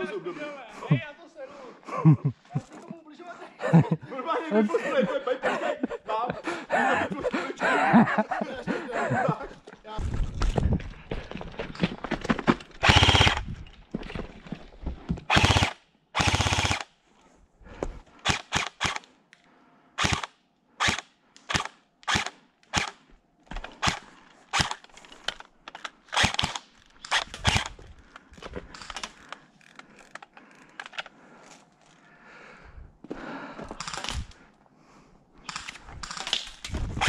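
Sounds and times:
airsoft gun full-auto bursts: 0:12.8 - 0:13.4, 0:15.3 - 0:16.9, 0:18.2 - 0:19.0, 0:20.0 - 0:23.0, 0:26.2 - 0:27.7.

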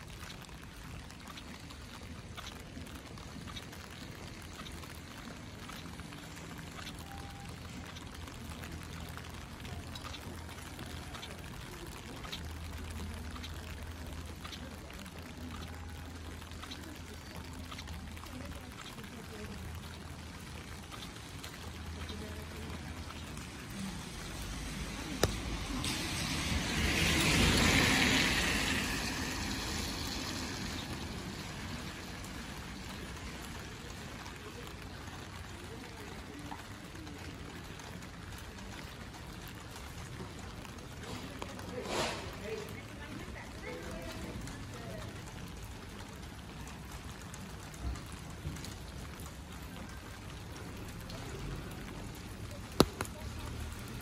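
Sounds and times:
footsteps on wet pavement: 0:00.0 - 0:54.0
water running and splashing: 0:00.0 - 0:54.0
van tyres hissing on wet road: 0:24.0 - 0:33.4, 0:41.7 - 0:42.6.

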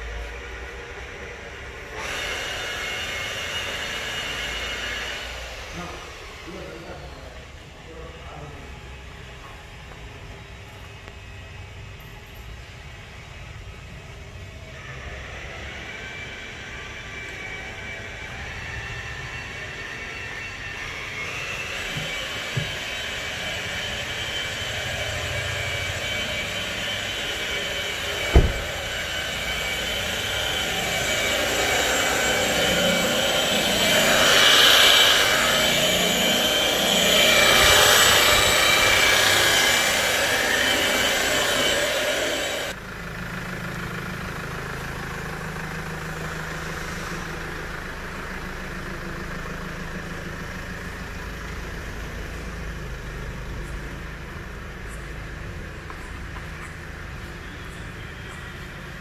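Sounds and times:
rotary polisher motor whine: 0:00.0 - 0:59.0
sharp knock: 0:28.3 - 0:28.7.

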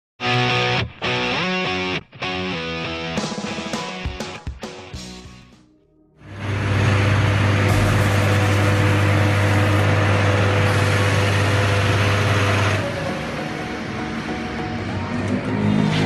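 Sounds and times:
electric motor humming and whirring: 0:06.3 - 0:14.4.

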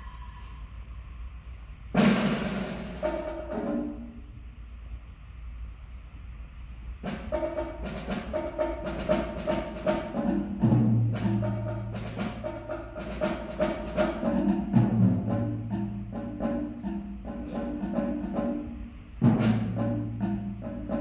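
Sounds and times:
drums playing busy rhythm: 0:02.0 - 0:04.2, 0:07.0 - 0:21.0
deep ringing low drum: 0:07.3 - 0:21.0.

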